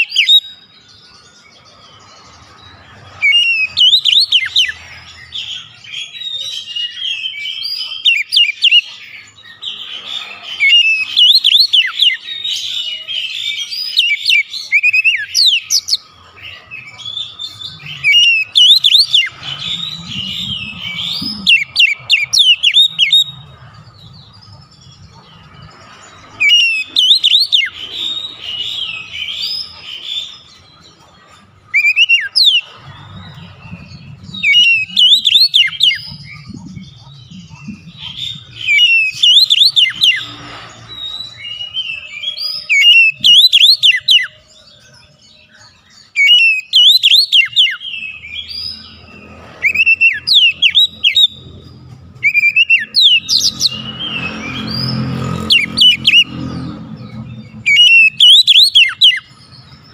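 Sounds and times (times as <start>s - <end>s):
bird singing whistled phrases: 3.2s - 4.8s, 17.0s - 23.3s, 26.4s - 27.8s, 31.7s - 32.6s, 34.4s - 36.8s, 37.4s - 40.4s, 41.0s - 44.4s, 46.2s - 48.5s, 52.2s - 54.7s, 57.7s - 59.4s.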